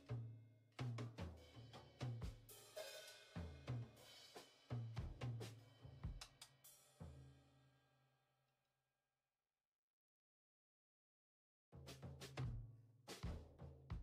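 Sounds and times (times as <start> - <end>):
drum beat with bass: 0.8 - 6.5, 12.2 - 14.0.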